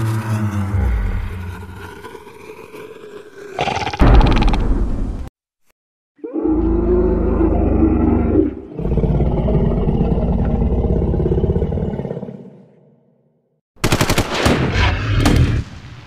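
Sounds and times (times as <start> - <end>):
dinosaur roars: 0.0 - 4.6, 6.2 - 12.7.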